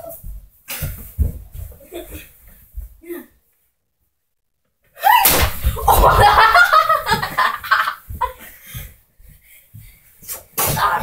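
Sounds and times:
children laughing: 5.8s - 8.4s.

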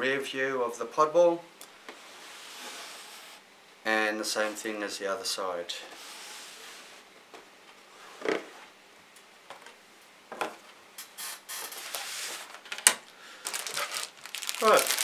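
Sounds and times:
plastic bags crinkling: 12.7s - 15.0s.

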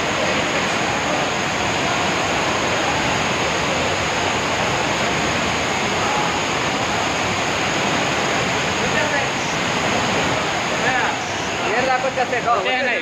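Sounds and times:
floodwater rushing over paving: 0.0s - 13.0s.

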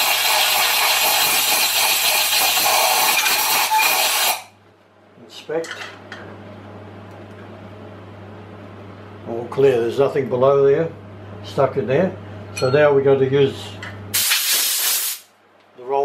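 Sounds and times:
compressed air blow gun hissing: 14.2s - 15.3s.

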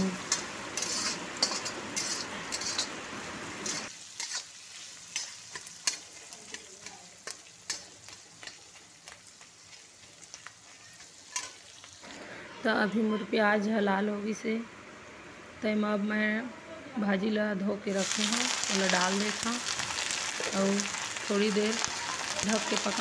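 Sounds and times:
onions sizzling in hot oil: 0.0s - 12.2s, 17.8s - 23.0s
steel spatula scraping a pan: 0.3s - 3.0s, 3.6s - 6.7s.

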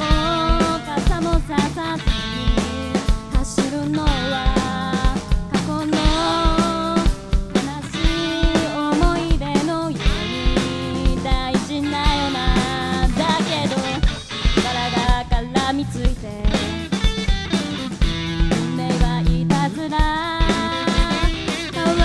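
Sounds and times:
woman singing: 0.0s - 16.9s, 18.5s - 22.0s
bass guitar: 0.0s - 22.0s
drum kit beat: 0.0s - 22.0s
electric guitars: 0.0s - 22.0s.

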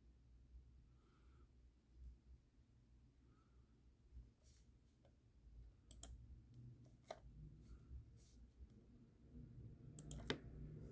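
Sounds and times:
computer mouse clicks: 5.8s - 7.3s, 9.9s - 10.6s.

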